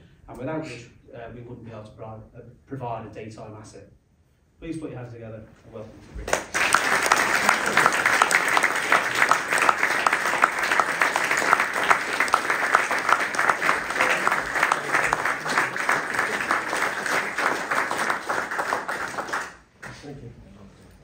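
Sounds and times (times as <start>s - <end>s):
audience applauding: 6.2s - 20.0s.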